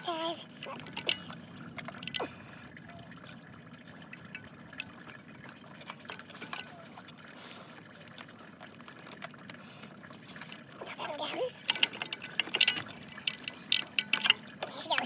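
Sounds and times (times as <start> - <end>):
coolant trickling: 0.0 - 15.0
wrench tapping engine parts: 0.5 - 3.4, 9.0 - 15.0.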